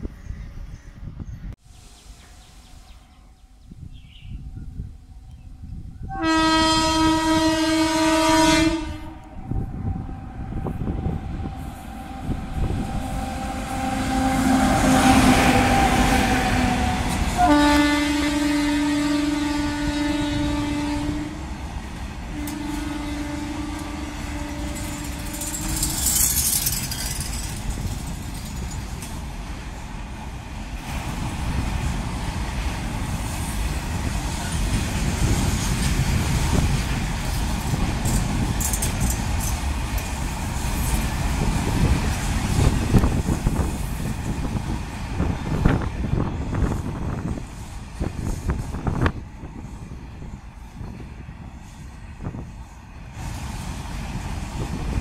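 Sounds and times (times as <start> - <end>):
locomotive horn blast: 6.1 - 9.6, 10.4 - 21.5, 22.3 - 26.2
locomotive passing with a rush: 20.4 - 55.0
freight wagons rumbling and clattering: 24.6 - 29.3.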